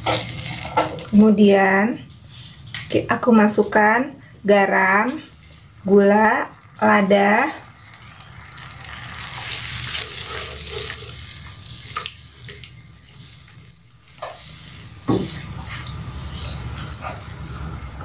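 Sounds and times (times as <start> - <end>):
sauce sizzling: 0.0 - 2.9, 4.6 - 18.0
spatula stirring sauce in wok: 7.7 - 17.3.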